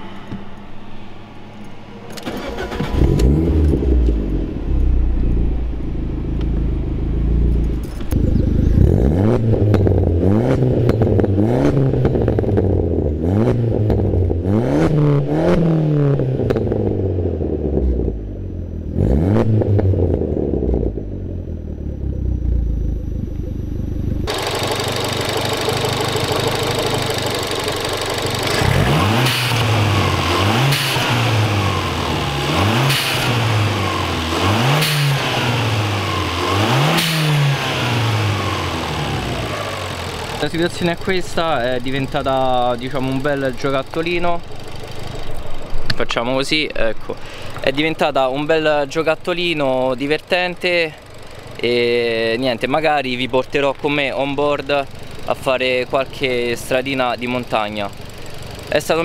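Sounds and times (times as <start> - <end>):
car engine revving: 0.0 - 46.0, 46.6 - 59.0
exhaust note: 0.0 - 59.0
engine idling: 2.2 - 9.1, 20.8 - 59.0.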